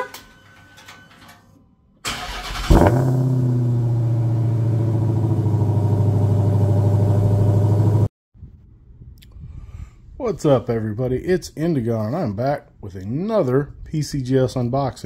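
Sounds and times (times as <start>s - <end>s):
car engine starting and idling: 2.0s - 8.1s.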